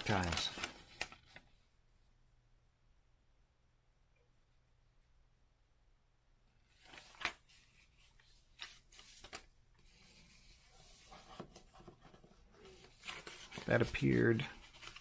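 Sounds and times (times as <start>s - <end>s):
paper rustling and crackling: 0.0s - 1.6s, 6.7s - 15.0s.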